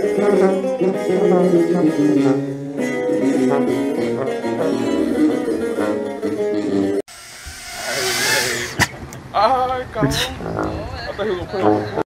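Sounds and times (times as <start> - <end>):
guitar music: 0.0 - 7.0
hiss: 7.1 - 9.0.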